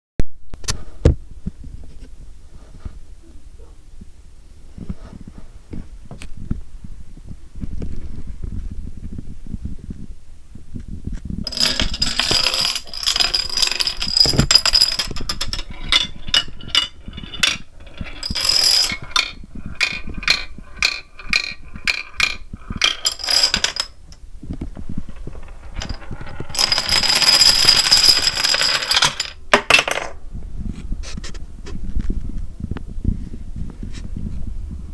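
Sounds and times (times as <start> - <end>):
plastic dominoes toppling: 11.5 - 23.9, 25.1 - 30.1.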